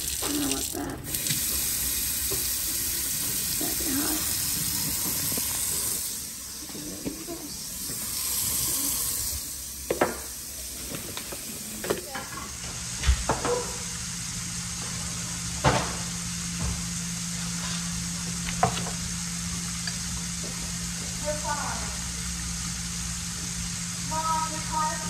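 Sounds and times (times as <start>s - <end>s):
appliance hum: 0.0s - 25.0s
hiss: 1.2s - 6.7s, 7.4s - 11.8s.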